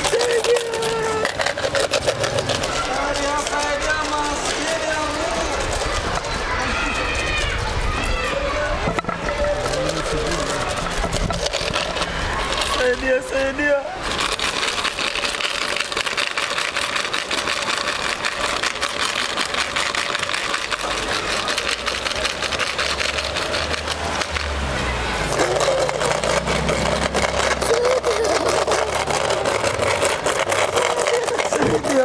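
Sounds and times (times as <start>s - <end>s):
outdoor background noise: 0.0s - 32.0s
car engine running low: 16.7s - 31.8s.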